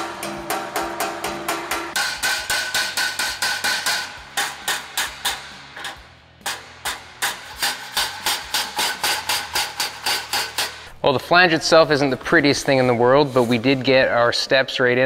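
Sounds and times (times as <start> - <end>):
hammer striking sheet metal: 0.0 - 10.9.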